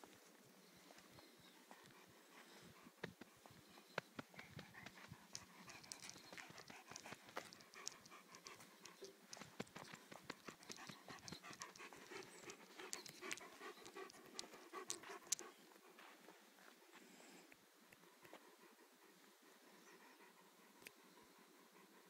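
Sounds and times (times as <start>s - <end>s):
dog panting: 0.7s - 22.0s
small clicks and taps: 4.0s - 15.4s.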